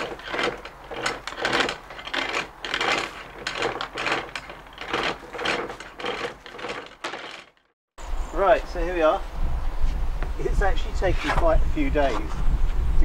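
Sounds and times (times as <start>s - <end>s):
anchor chain rattling: 0.0s - 7.7s.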